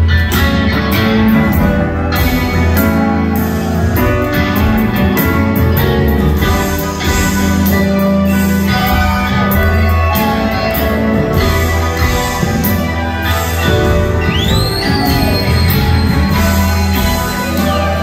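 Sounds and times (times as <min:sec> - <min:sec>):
live band playing: 0:00.0 - 0:18.0
strong bass line: 0:00.0 - 0:18.0.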